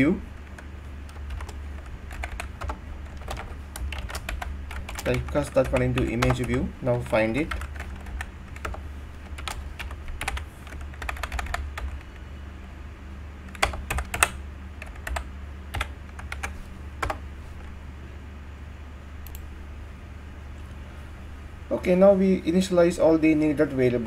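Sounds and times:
computer keyboard typing: 0:00.0 - 0:12.2, 0:13.5 - 0:17.2
steady low hum: 0:00.0 - 0:24.0.

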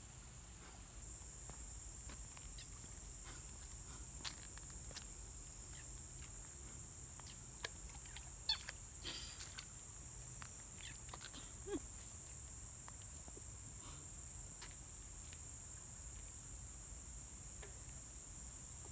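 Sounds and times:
high-pitched insect chorus: 0:01.0 - 0:18.9
frog squeaks: 0:02.6 - 0:02.9, 0:05.7 - 0:05.9, 0:07.2 - 0:08.8, 0:10.8 - 0:11.2.

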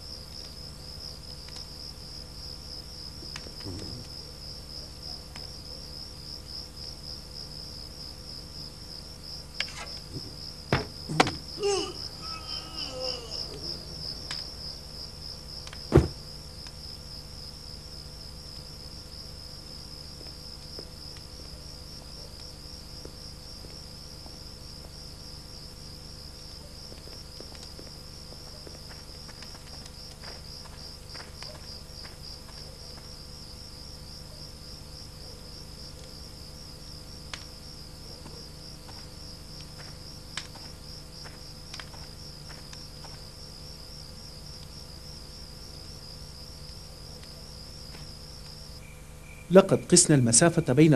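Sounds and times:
crickets trilling: 0:00.0 - 0:50.9
sharp loud knock: 0:15.9 - 0:16.2.

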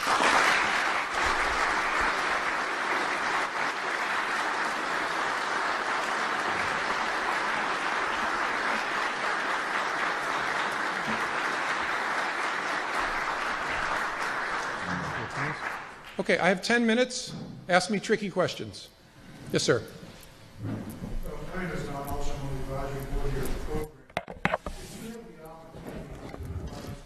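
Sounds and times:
large audience applauding: 0:00.0 - 0:16.5.

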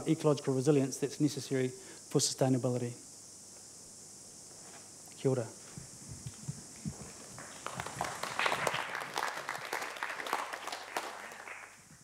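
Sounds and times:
audience applause: 0:07.4 - 0:12.0.

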